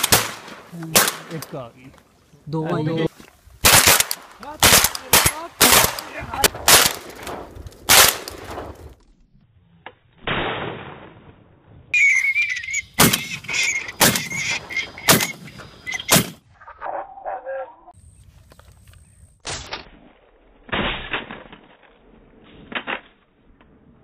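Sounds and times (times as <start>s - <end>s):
shotgun shots: 0.0s - 1.6s, 3.6s - 8.8s, 10.2s - 11.4s, 13.0s - 13.4s, 14.0s - 14.4s, 15.0s - 15.5s, 16.1s - 16.4s
high wavering whistle: 12.0s - 15.1s.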